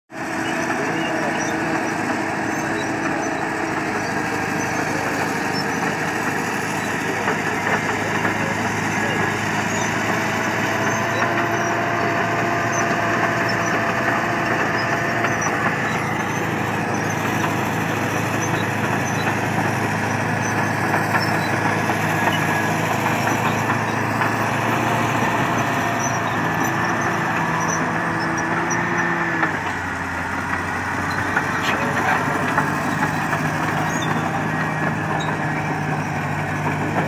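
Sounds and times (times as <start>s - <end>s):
bulldozer diesel engine under load: 0.1s - 37.0s.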